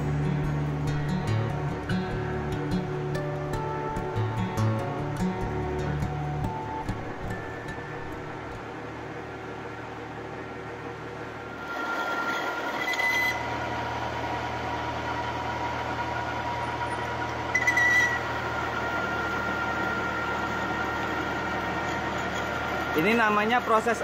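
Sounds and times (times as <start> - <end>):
metal lathe whining: 11.4 - 24.0
cutting tool shrill cut: 11.5 - 13.5, 17.5 - 18.3.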